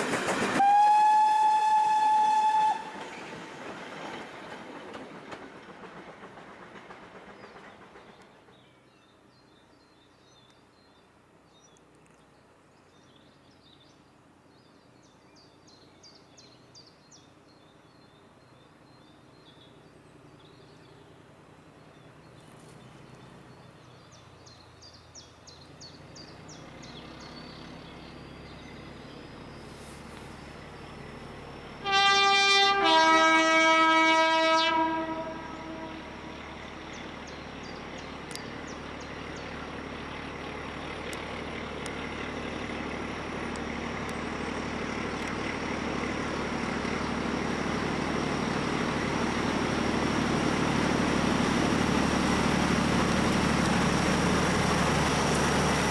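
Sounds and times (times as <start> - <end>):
steam locomotive approaching: 0.0 - 10.9, 15.1 - 55.9
diesel locomotive approaching: 0.0 - 55.9
two-tone locomotive horn: 0.6 - 3.2, 31.8 - 36.5.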